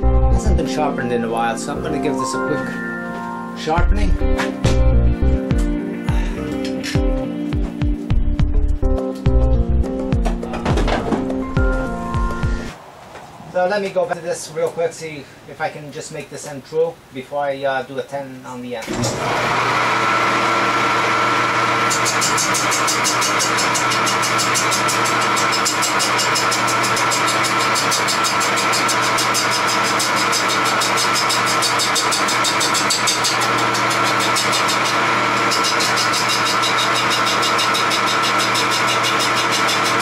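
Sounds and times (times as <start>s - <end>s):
lathe motor hum: 18.9s - 40.0s
turning tool hitting wood: 21.9s - 40.0s.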